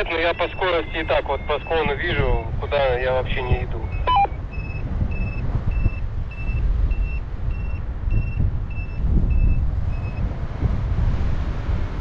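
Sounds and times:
wind rushing over microphone: 0:00.0 - 0:12.0
variometer short beeps: 0:03.8 - 0:10.2.

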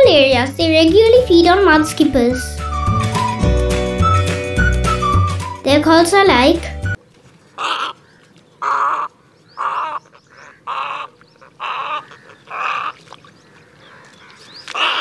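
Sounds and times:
heron calling: 0:07.5 - 0:15.0.

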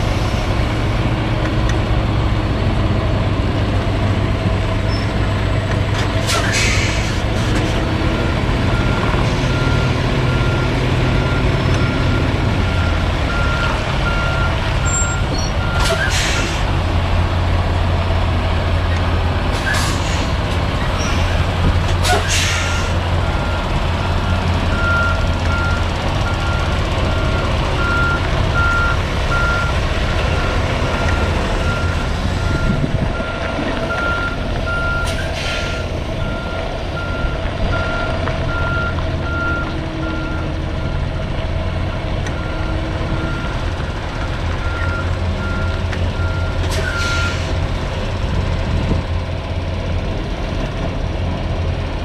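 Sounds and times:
diesel engine running: 0:00.0 - 0:52.0
short air hisses: 0:06.3 - 0:07.2.

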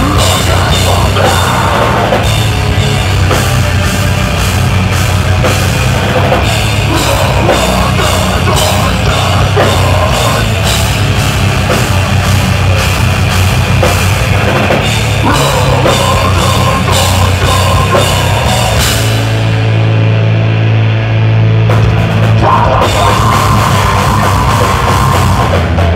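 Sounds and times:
heavy electric guitars: 0:00.0 - 0:25.9
pounding drum kit: 0:00.0 - 0:25.9.

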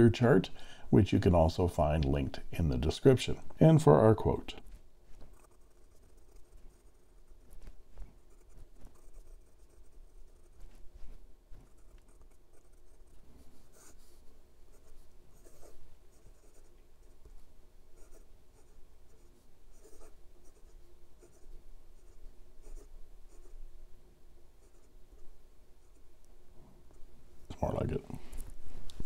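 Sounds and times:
fountain pen scratching on paper: 0:05.2 - 0:16.7, 0:18.0 - 0:21.4, 0:22.0 - 0:23.5.

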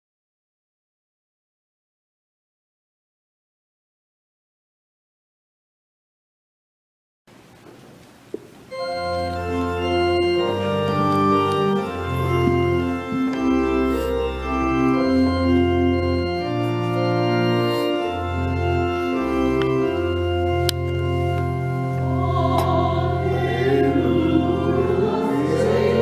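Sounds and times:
church organ chords: 0:08.7 - 0:26.0
click: 0:20.6 - 0:20.8.

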